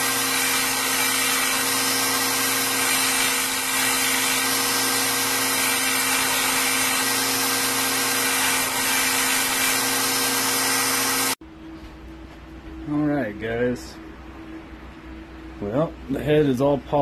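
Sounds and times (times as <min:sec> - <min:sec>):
belt grinder motor hum: 0:00.0 - 0:11.4
steel grinding on belt: 0:00.0 - 0:11.4.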